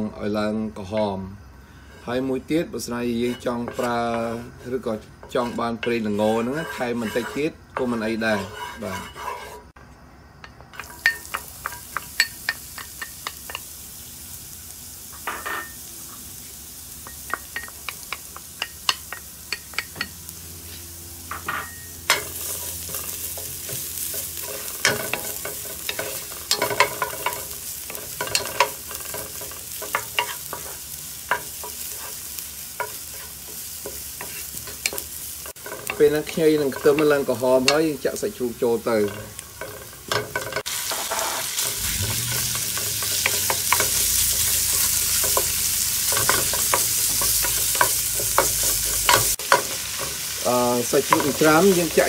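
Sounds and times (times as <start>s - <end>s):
garlic and ginger sizzling in oil: 0.0s - 52.0s
spatula tapping and scraping pan: 3.2s - 9.7s, 10.4s - 13.7s, 17.0s - 20.2s, 21.3s - 37.9s, 38.9s - 52.0s.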